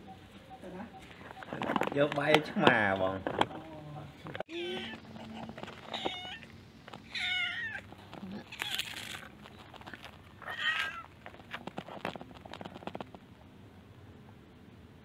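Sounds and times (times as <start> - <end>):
cat meowing: 4.5 - 5.0, 5.9 - 7.9, 10.4 - 11.1.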